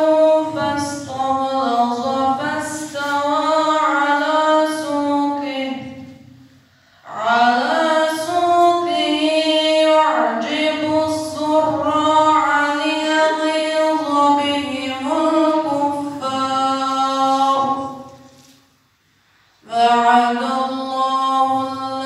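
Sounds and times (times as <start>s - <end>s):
boy reciting melodically: 0.0s - 18.5s, 19.6s - 22.0s.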